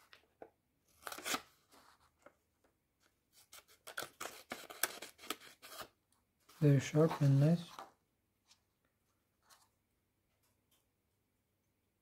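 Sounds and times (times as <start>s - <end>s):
paper sheet rustling: 6.5s - 8.0s.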